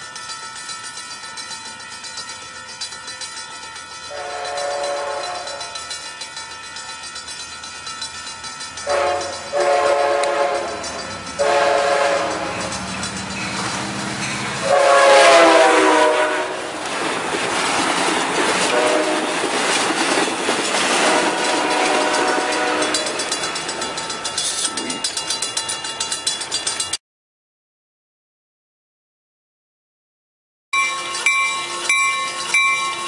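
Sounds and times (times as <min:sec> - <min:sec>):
train cars rumbling past: 0:00.1 - 0:27.0
locomotive horn blasts: 0:04.1 - 0:05.9, 0:08.8 - 0:12.8, 0:14.5 - 0:16.8, 0:18.7 - 0:19.3, 0:21.0 - 0:23.3.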